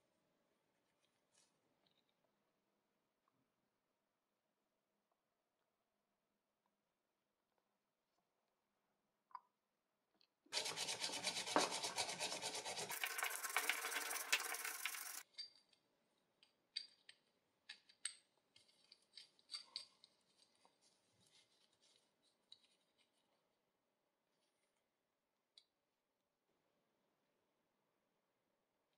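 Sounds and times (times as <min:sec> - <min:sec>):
metal rubbing rasp: 0:10.5 - 0:15.2.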